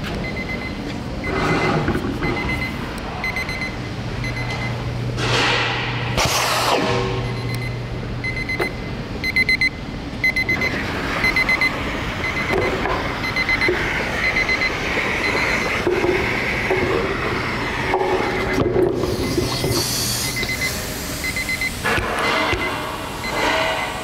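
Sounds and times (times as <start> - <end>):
electronic beeper beeping: 0.2 - 4.8, 6.5 - 15.8, 19.2 - 23.6.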